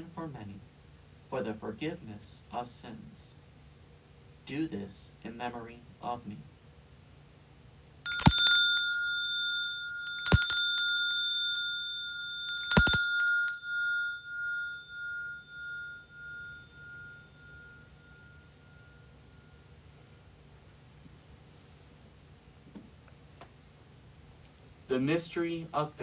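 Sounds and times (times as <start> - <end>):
altar bell ringing: 8.1 - 19.9.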